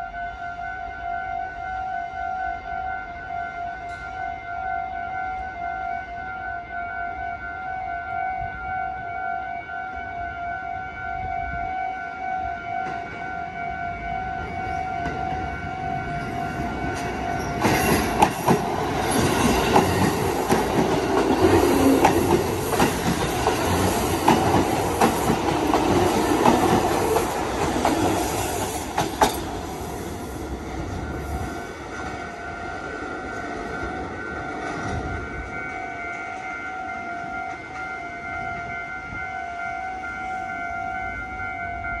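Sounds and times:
crossing warning bell ringing: 0.0 - 42.0
train wheels clacking over rail joints: 16.9 - 29.8.

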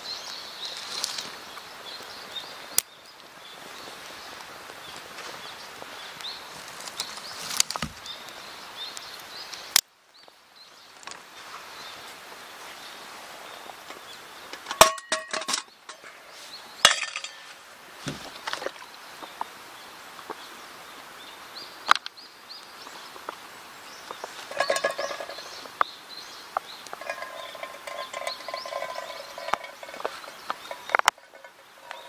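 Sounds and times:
metal cookware clinking: 14.7 - 16.2, 16.9 - 17.5, 24.5 - 25.6, 26.9 - 32.0
metal pot rubbing and ringing: 14.7 - 16.2, 24.4 - 25.7, 26.9 - 32.0.

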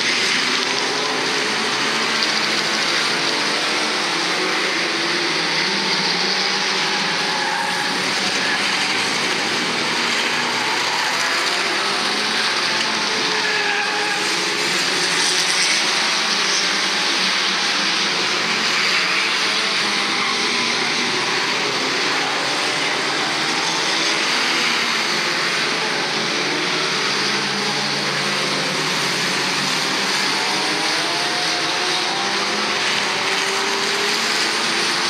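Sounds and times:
racing car engines: 0.0 - 35.0.

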